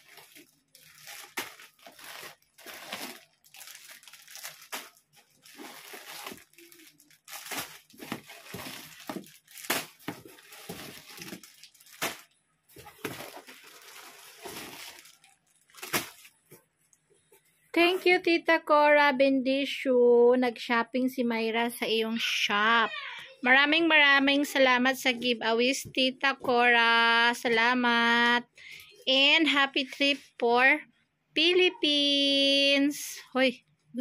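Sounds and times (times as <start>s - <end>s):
plastic bags crinkling: 0.0s - 16.6s.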